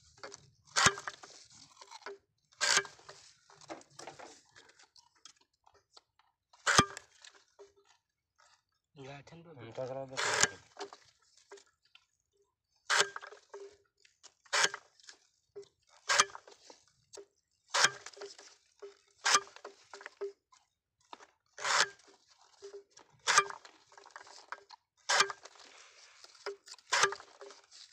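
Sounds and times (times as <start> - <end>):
cane cutter chopping: 0.8 - 1.2, 2.6 - 3.0, 10.2 - 10.6, 12.9 - 13.3, 17.8 - 18.2, 26.9 - 27.3.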